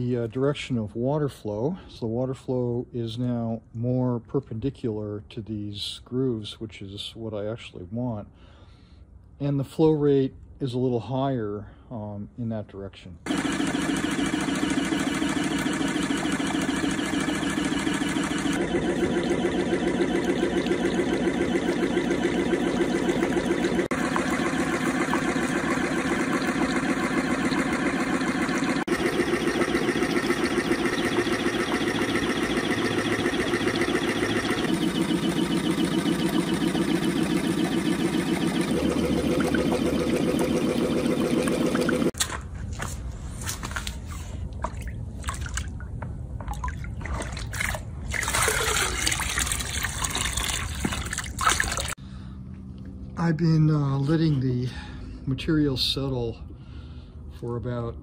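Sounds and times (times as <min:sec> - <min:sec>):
water washing over deck: 0:47.0 - 0:52.0.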